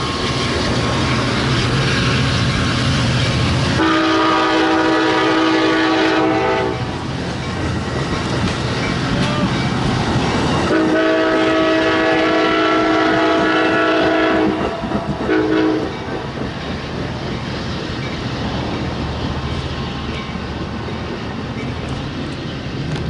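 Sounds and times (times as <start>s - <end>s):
train wheels clickety-clack: 0.0s - 23.0s
train air horn: 3.8s - 6.9s, 10.7s - 15.9s.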